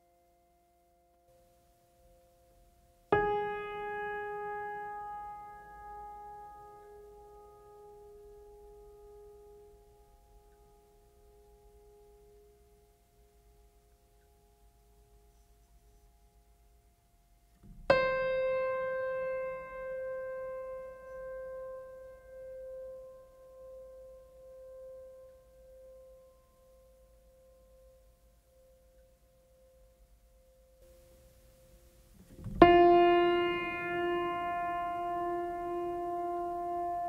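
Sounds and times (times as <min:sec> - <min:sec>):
piano note ringing: 0:03.1 - 0:10.8, 0:17.6 - 0:25.9, 0:30.8 - 0:37.0.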